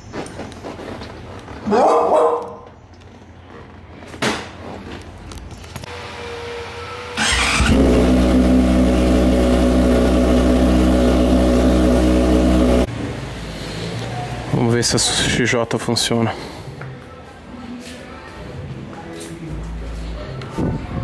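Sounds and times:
short starter whine: 6.8s - 12.9s
motorcycle engine running: 7.2s - 12.9s.

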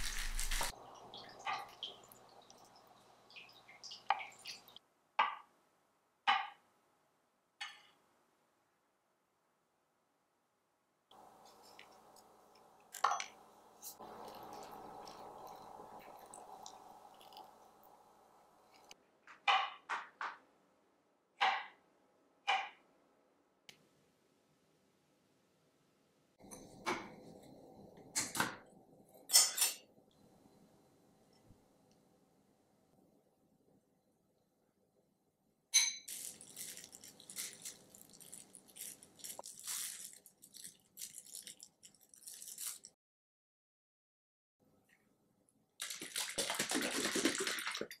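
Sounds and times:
plastic glove crinkling: 0.0s - 0.8s, 36.1s - 43.0s, 45.8s - 47.8s.

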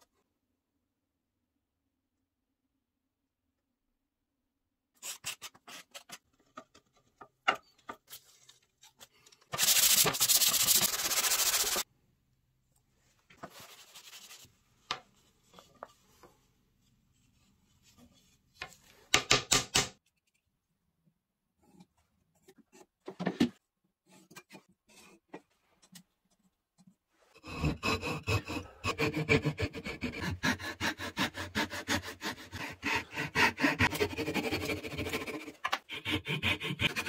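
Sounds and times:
sanding wood rasping: 9.6s - 11.8s, 27.4s - 37.0s.

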